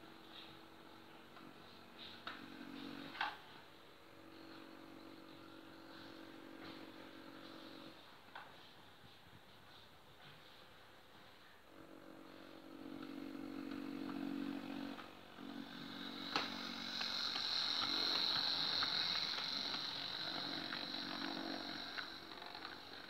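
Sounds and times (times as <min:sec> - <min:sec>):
high steady train whine: 0:00.0 - 0:08.7, 0:11.1 - 0:23.0
small electric motor humming: 0:04.1 - 0:08.0, 0:11.7 - 0:23.0.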